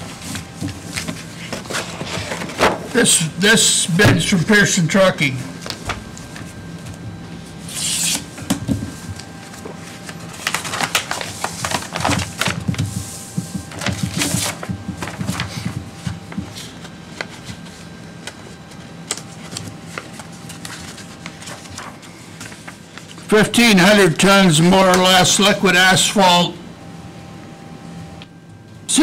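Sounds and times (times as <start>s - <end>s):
faint steady hum: 0.0s - 29.0s
paper rustling: 0.1s - 2.8s, 5.5s - 7.0s, 7.7s - 23.3s.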